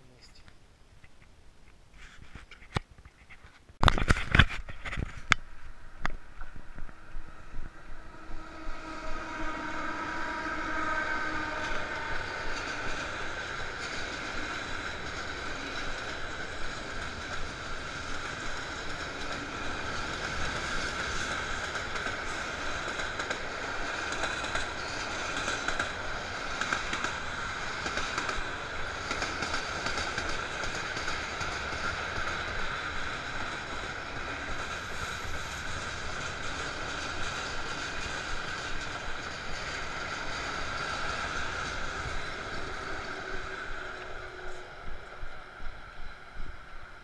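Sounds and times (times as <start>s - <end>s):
freight train wagons rolling: 8.5s - 44.8s.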